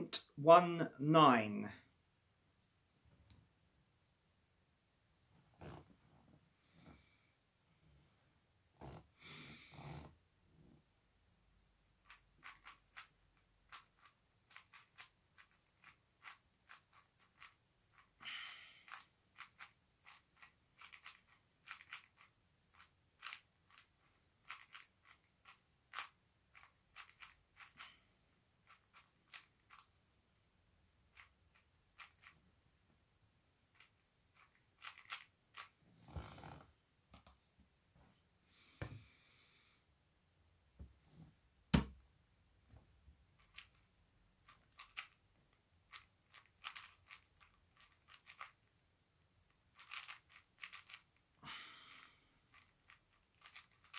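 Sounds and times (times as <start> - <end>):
puzzle cube clicking: 12.0 - 18.2, 18.8 - 27.9, 28.6 - 29.9, 31.1 - 32.4, 33.8 - 35.8, 44.5 - 45.2, 45.9 - 48.6, 49.8 - 51.1, 52.5 - 53.9.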